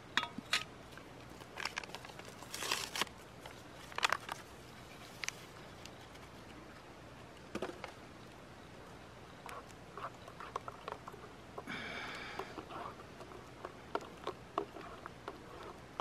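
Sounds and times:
packet crinkling: 0:01.2 - 0:06.3.

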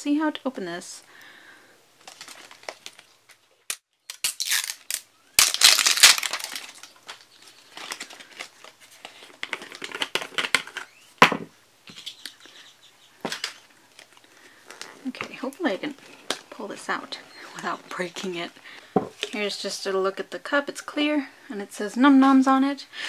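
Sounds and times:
plastic jar crinkling: 0:02.0 - 0:03.5, 0:04.1 - 0:10.9, 0:13.3 - 0:19.8
paper tags rustling: 0:04.2 - 0:10.9.

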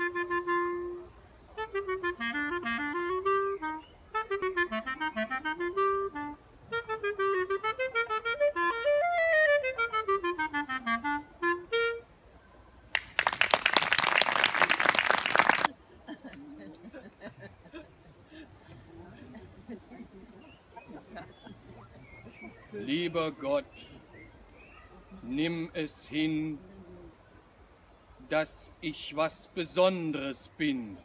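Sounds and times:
solo clarinet playing: 0:00.0 - 0:12.2
applause: 0:12.9 - 0:15.7.

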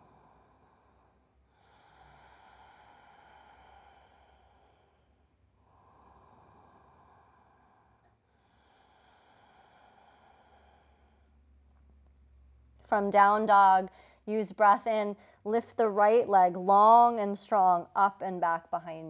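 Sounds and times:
slow deep breathing: 0:00.0 - 0:12.8, 0:13.9 - 0:14.3.

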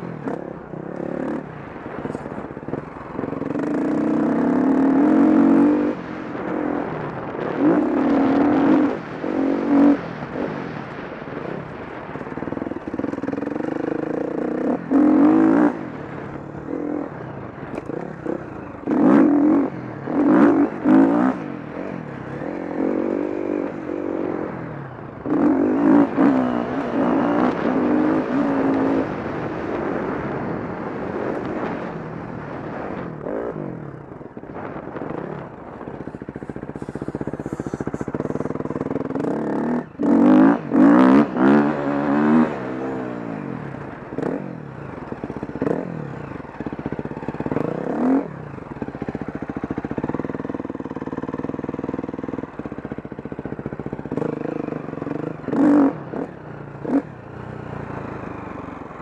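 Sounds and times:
motocross bike engine revving: 0:03.4 - 0:11.3, 0:13.0 - 0:16.1, 0:16.7 - 0:24.6, 0:25.2 - 0:30.2, 0:35.9 - 0:57.1.

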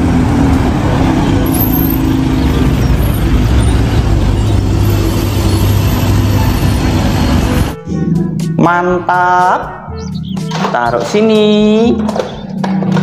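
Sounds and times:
bus engine drone: 0:00.0 - 0:08.5.

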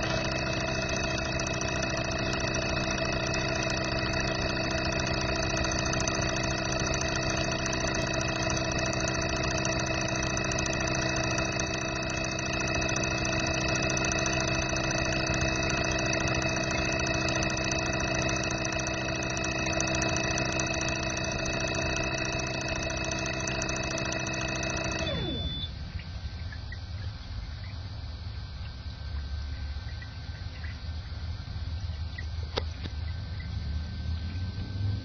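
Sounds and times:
fuel injectors buzzing: 0:00.0 - 0:25.7
constant hum: 0:00.0 - 0:35.0.

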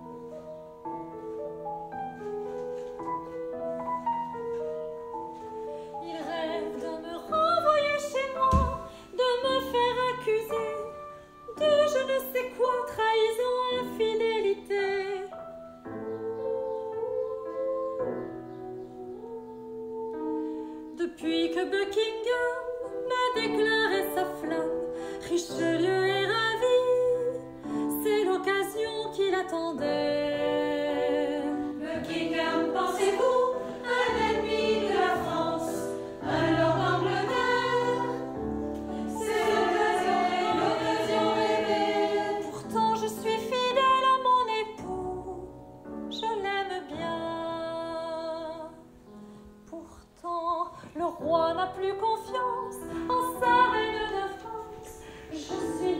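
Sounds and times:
woman singing lead: 0:05.9 - 0:15.4, 0:16.0 - 0:48.8, 0:49.7 - 0:55.9
women's chorus singing: 0:06.0 - 0:08.8, 0:30.1 - 0:43.5
instrumental accompaniment: 0:30.1 - 0:44.0.

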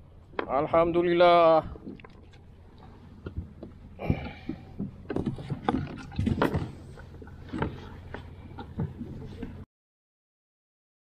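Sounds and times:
knocks and scrapes on kayak hull: 0:01.6 - 0:09.6.

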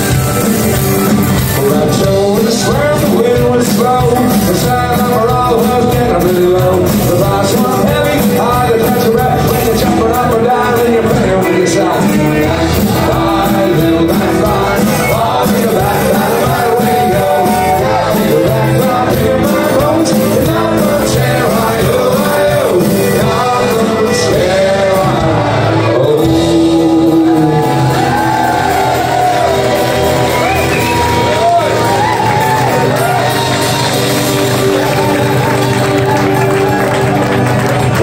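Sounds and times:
live folk-rock band playing: 0:00.0 - 0:38.0
person singing: 0:00.0 - 0:38.0
crowd shouting: 0:10.6 - 0:38.0.

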